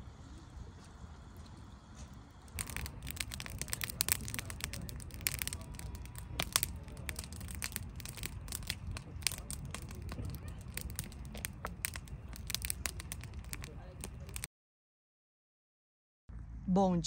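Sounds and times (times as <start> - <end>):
campfire crackling and popping: 0.2 - 14.5
low steady rumble: 16.3 - 17.0.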